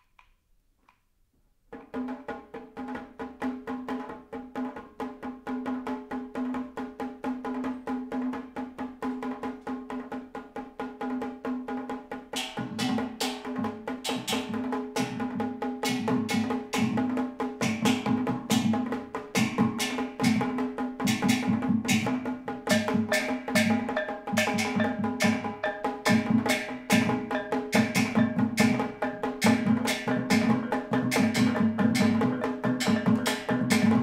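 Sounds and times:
goblet drum beating: 0:12.3 - 0:34.0.

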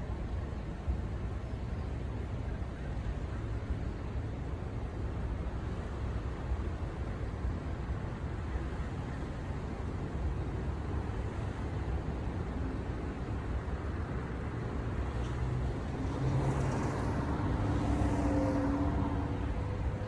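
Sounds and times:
aircraft rumble overhead: 0:11.7 - 0:20.0.

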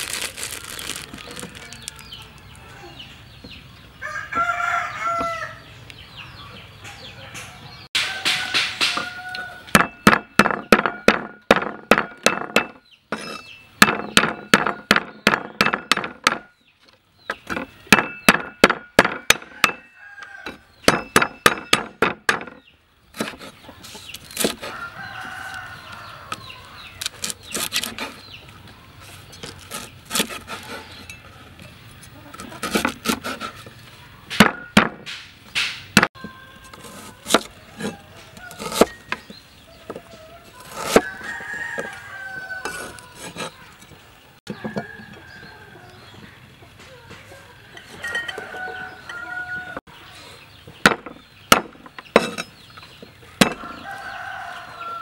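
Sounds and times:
rooster crowing: 0:04.0 - 0:05.7, 0:07.2 - 0:09.7, 0:19.5 - 0:20.7, 0:24.6 - 0:26.8, 0:40.0 - 0:43.3, 0:47.6 - 0:49.9, 0:53.5 - 0:55.0
cleaver chopping on wooden board: 0:08.0 - 0:16.5, 0:17.4 - 0:19.9, 0:20.5 - 0:22.6, 0:34.3 - 0:36.1, 0:50.8 - 0:52.5, 0:53.4 - 0:53.7
chickens clucking: 0:30.4 - 0:34.8, 0:35.6 - 0:55.0.

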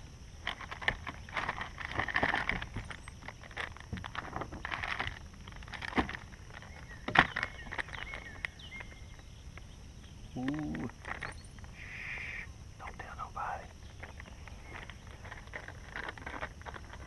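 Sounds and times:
fishing tackle rustling and clicking: 0:00.4 - 0:09.0, 0:13.9 - 0:17.0
man humming: 0:10.4 - 0:10.9.

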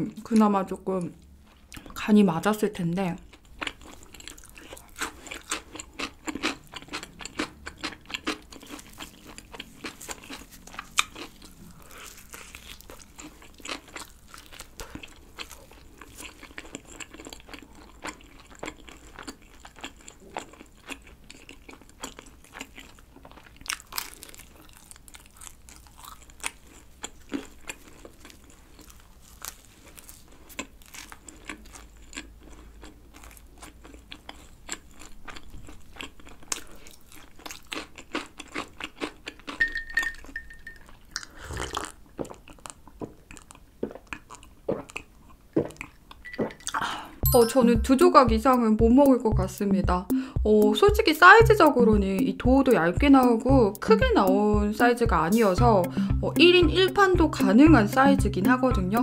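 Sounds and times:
crunchy chewing: 0:03.3 - 0:46.8.

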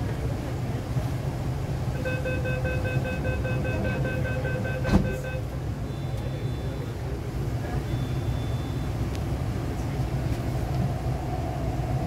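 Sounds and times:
train low hum: 0:00.0 - 0:12.0
rapid short beeps: 0:02.0 - 0:07.0, 0:07.8 - 0:09.0
thump: 0:04.9 - 0:05.2.

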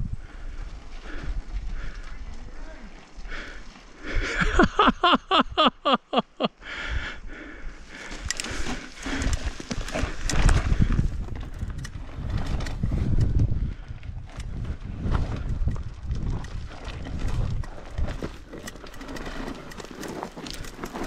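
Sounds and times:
bike rattling: 0:00.1 - 0:05.7, 0:07.7 - 0:21.0
wind on microphone: 0:07.7 - 0:18.5
tyres crunching over gravel: 0:07.8 - 0:12.7, 0:15.4 - 0:21.0.

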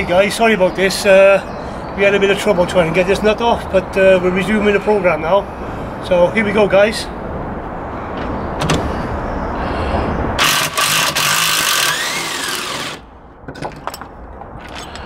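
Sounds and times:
cordless drill motor: 0:10.4 - 0:13.0.

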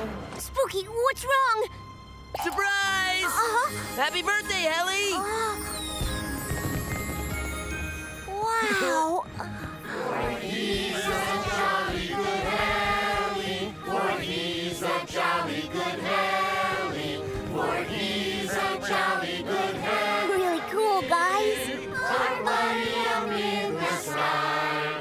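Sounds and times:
group of voices singing: 0:09.8 - 0:25.0.

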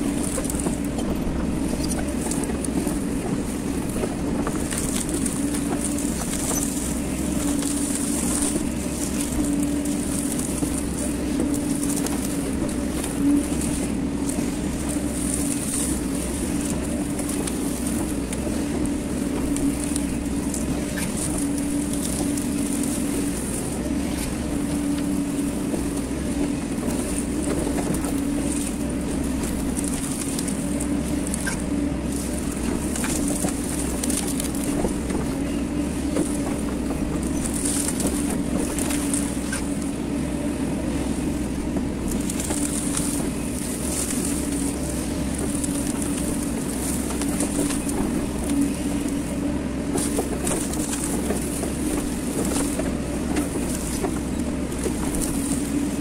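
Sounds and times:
excavator engine drone: 0:00.0 - 0:56.0.

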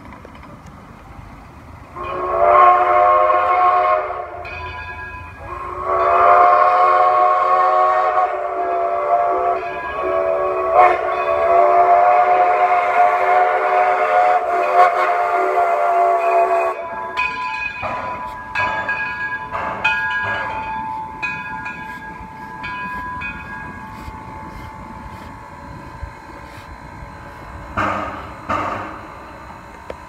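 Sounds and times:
steam locomotive whistle: 0:01.9 - 0:04.6, 0:05.4 - 0:19.0.

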